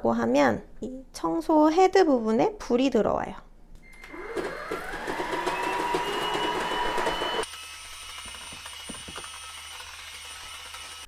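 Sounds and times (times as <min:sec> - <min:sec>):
stick vacuum motor whining: 0:03.8 - 0:11.0.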